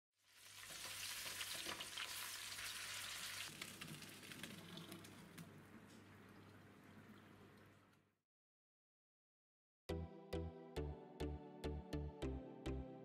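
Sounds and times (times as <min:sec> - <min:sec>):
food sizzling in a pot: 0:00.2 - 0:05.2.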